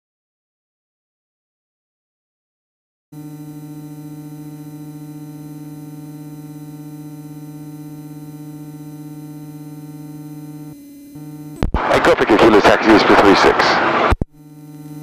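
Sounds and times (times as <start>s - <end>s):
plane engine buzzing drone: 3.2s - 15.0s.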